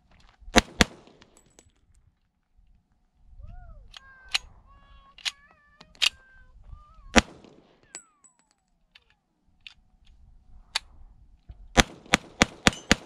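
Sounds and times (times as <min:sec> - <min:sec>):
handgun shots: 0:07.1 - 0:08.0, 0:11.8 - 0:13.0.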